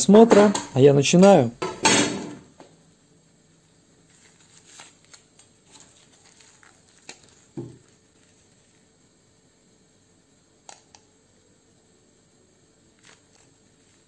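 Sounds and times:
gloved hands handling steel pieces: 4.1 - 8.8.

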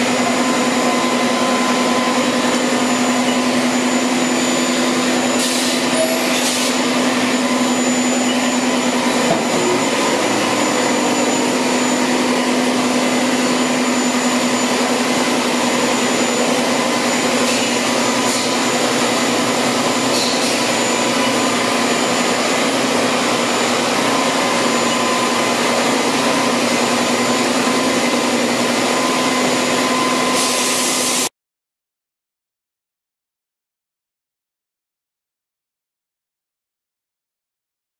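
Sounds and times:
machine low hum and whine: 0.0 - 31.3
machine coolant spraying hiss: 4.8 - 7.4, 14.4 - 24.7, 30.3 - 31.3.

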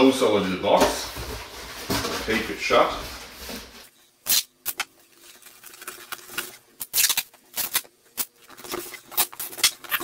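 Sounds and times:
duct tape ripping off roll: 4.2 - 4.9, 6.2 - 10.0.

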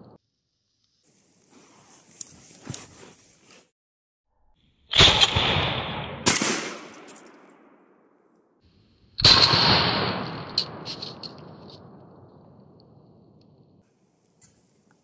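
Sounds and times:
shotgun blasts: 4.9 - 7.8, 9.2 - 13.2
sharp crack: 4.9 - 8.4, 9.2 - 13.8.

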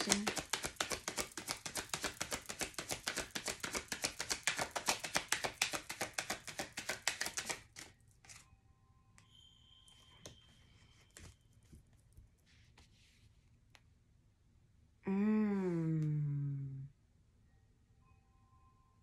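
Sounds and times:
cards being shuffled: 0.0 - 8.4.

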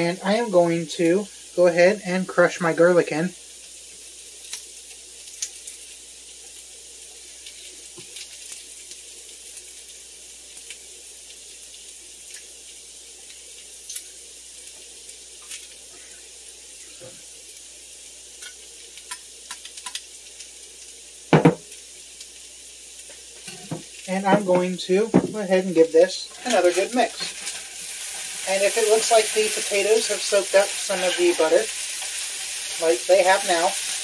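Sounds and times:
vegetables sizzling in butter: 0.0 - 34.0
loud knock: 21.4 - 21.6.

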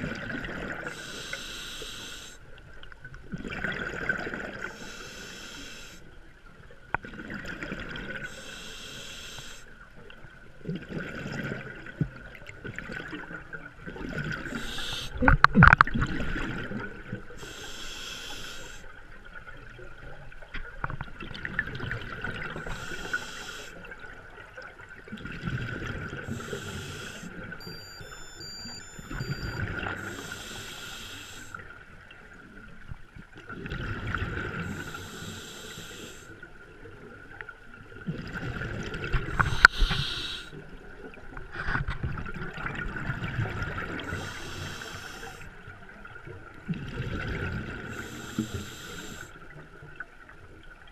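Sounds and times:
diver breathing through regulator: 0.8 - 2.4, 4.6 - 6.0, 8.2 - 9.7, 14.4 - 15.3, 17.4 - 18.9, 22.6 - 23.8, 26.2 - 27.4, 28.8 - 31.6, 34.5 - 36.4, 39.3 - 40.6, 44.0 - 45.5, 47.8 - 49.4
exhaled bubbles rushing: 3.3 - 4.7, 10.7 - 17.2, 23.9 - 26.5, 37.9 - 40.2.

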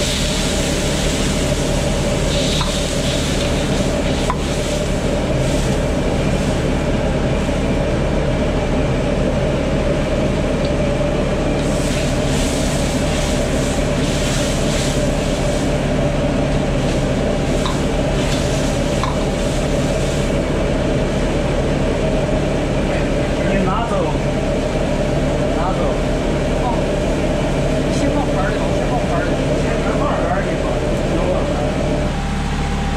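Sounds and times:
sizzling hiss: 0.0 - 7.6, 11.5 - 20.6
wok stove roaring: 0.0 - 32.9.

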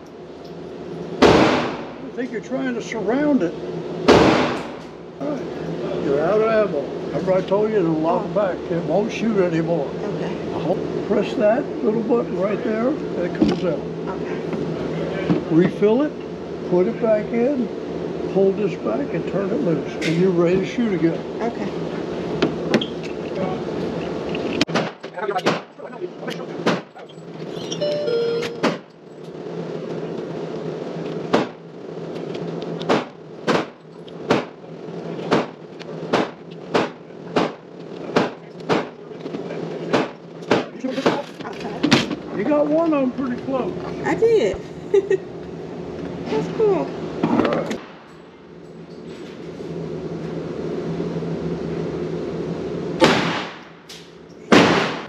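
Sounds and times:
gunshots with echo: 1.2 - 1.9
pistol shot: 1.2 - 1.9, 4.1 - 4.8, 53.0 - 53.7, 54.5 - 55.0.

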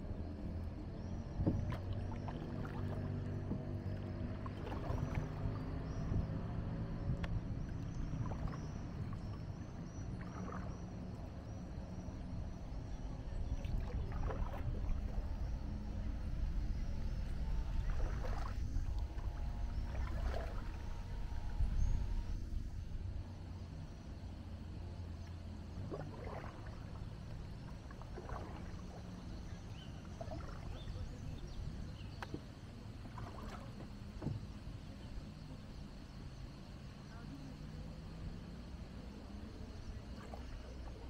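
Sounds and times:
steady low hum: 0.0 - 41.0
paddle splashing in water: 1.4 - 6.3, 7.2 - 11.3, 13.4 - 22.5, 25.1 - 35.4, 39.1 - 41.0.

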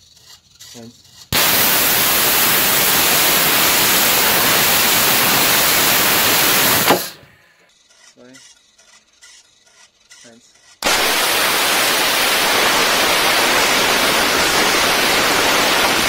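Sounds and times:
rocket motors hissing thrust: 1.3 - 7.4, 10.8 - 16.0
sharp pop: 4.1 - 7.3, 10.8 - 12.2.

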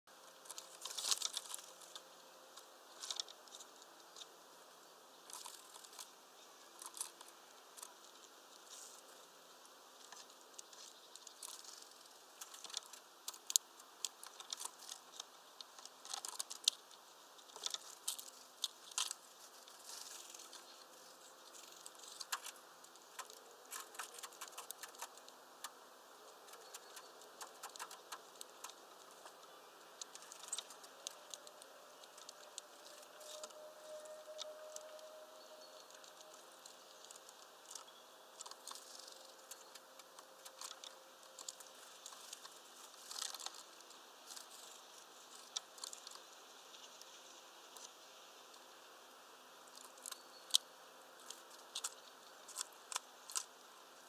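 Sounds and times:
woodpecker tapping and clicking: 21.5 - 25.8, 26.5 - 33.5.

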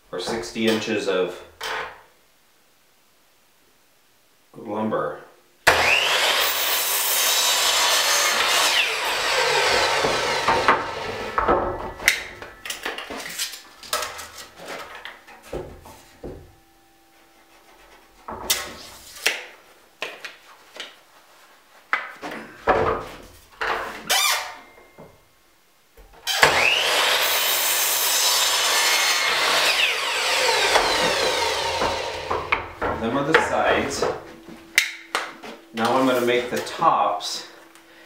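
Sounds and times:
miter saw cutting wood: 5.7 - 11.4, 26.3 - 32.6
wooden boards knocking and sliding: 9.7 - 13.2, 30.7 - 36.0.

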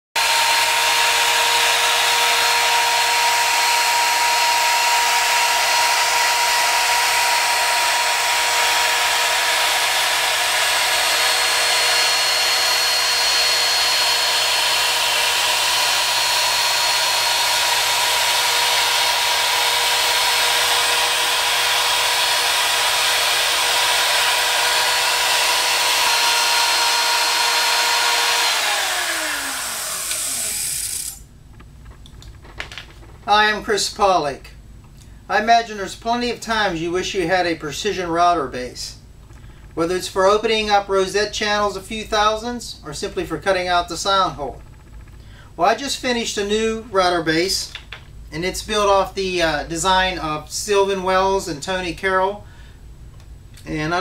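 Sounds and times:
trim router whining: 0.2 - 31.3.

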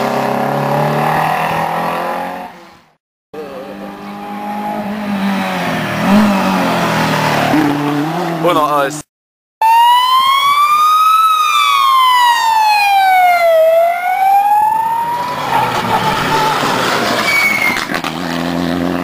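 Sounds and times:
siren wailing: 9.6 - 17.8
rally car rushing past: 15.2 - 19.0.

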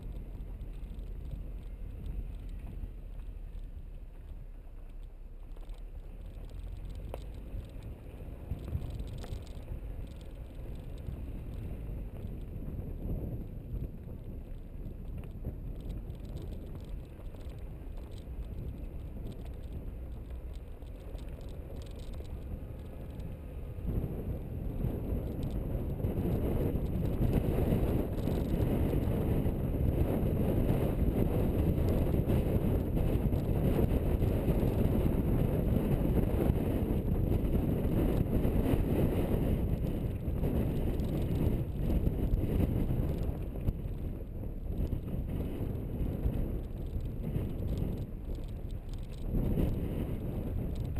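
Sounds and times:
tyres rumbling over gravel: 0.0 - 24.2
wind noise: 0.0 - 50.9.

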